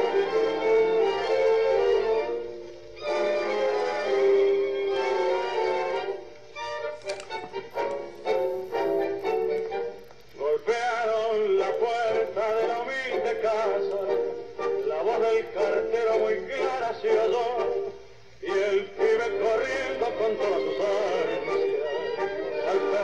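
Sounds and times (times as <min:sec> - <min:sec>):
man singing tango song: 0:10.4 - 0:23.0.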